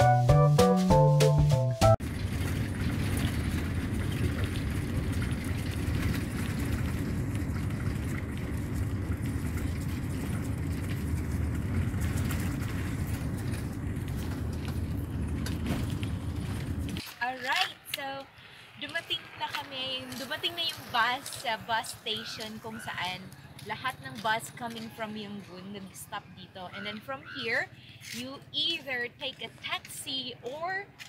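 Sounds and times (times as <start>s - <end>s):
piano music: 0.0s - 2.0s
vehicle interior rumble: 1.9s - 17.1s.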